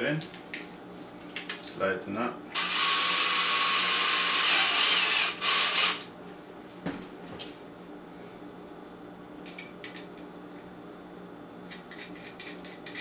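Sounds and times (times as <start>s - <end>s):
cordless drill driving screw: 2.6s - 6.0s.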